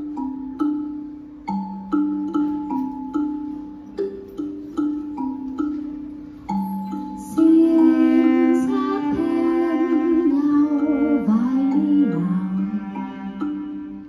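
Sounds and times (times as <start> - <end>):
woman singing: 7.2 - 13.4
bowed cello: 7.2 - 14.0.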